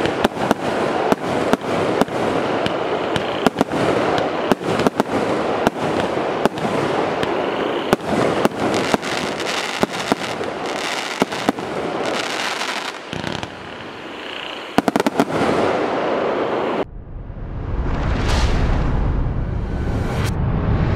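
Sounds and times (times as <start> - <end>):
loud firework bangs: 0.0 - 16.3
firework crackle: 0.0 - 16.8.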